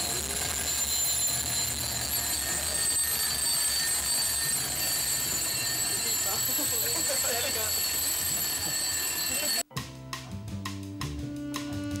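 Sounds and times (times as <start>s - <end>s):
alarm clocks ringing: 0.0s - 9.7s.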